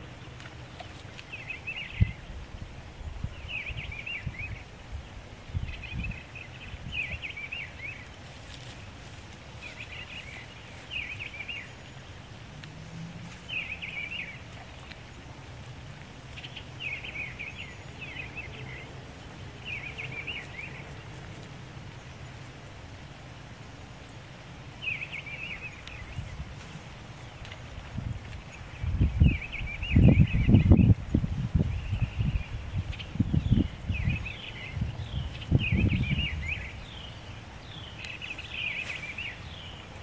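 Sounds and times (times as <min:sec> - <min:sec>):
low rumble of wind: 0:00.0 - 0:40.0
wind bumps on microphone: 0:01.7 - 0:07.3, 0:27.7 - 0:37.0.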